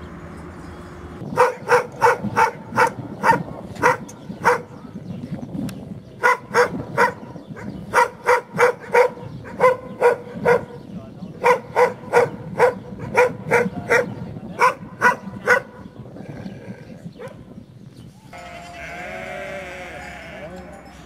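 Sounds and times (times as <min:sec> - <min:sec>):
dog barking: 0:01.4 - 0:04.9, 0:06.2 - 0:15.9, 0:17.2 - 0:17.4.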